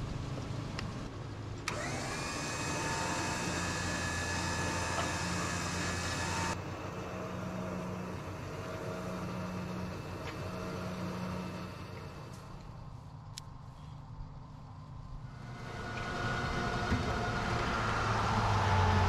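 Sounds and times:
electric winch whirring: 1.6 - 13.0, 15.3 - 19.0.

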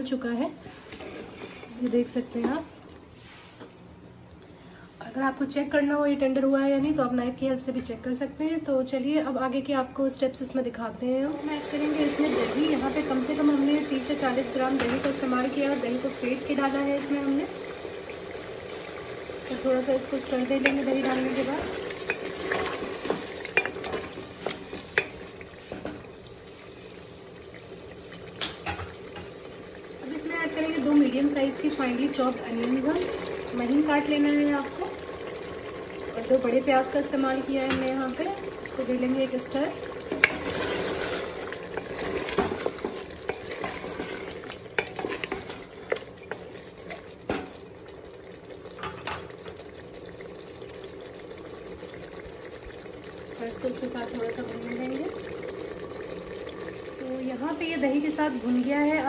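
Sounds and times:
wet stirring in a pot: 0.0 - 4.6, 11.3 - 59.0
faint sizzle of frying: 0.0 - 59.0
wooden spatula scraping metal pot: 0.7 - 2.0, 20.5 - 25.2, 40.1 - 46.4.

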